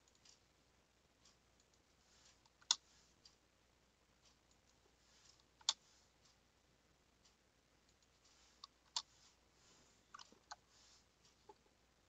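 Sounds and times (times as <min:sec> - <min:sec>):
faint keyboard ticks: 0:00.0 - 0:00.5, 0:01.2 - 0:03.4.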